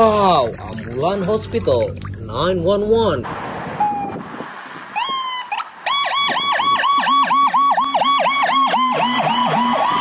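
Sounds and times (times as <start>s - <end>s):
ambulance siren wailing: 3.8s - 4.3s, 4.9s - 10.0s
low wavering siren tone: 5.1s - 10.0s.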